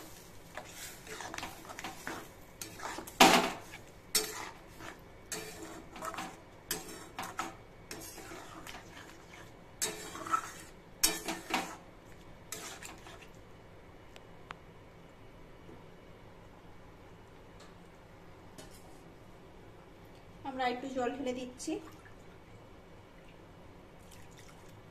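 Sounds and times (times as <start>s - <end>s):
metal spatula scraping a pan: 0.0s - 11.8s, 12.5s - 13.3s.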